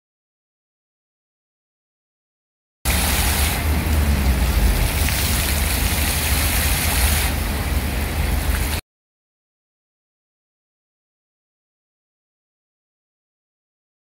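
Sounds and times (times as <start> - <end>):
fountain water splashing: 2.9 - 8.8
road traffic rumble: 2.9 - 8.8.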